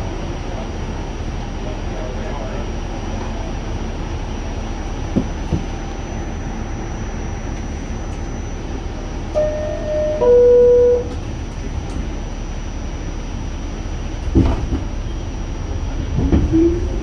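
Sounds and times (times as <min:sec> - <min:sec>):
subway car rumble: 0:00.0 - 0:17.0
two-note descending door chime: 0:09.4 - 0:11.1.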